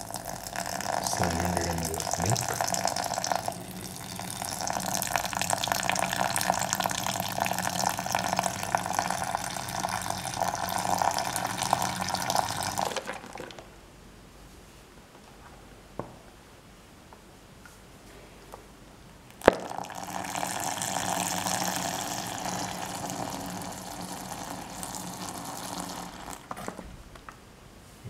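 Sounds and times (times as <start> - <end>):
milk pouring and splashing into jar: 0.0 - 13.7, 19.5 - 26.8.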